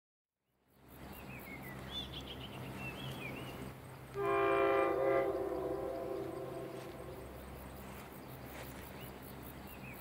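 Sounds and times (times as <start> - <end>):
birds chirping: 0.7 - 10.0
train horn blast: 4.1 - 7.2.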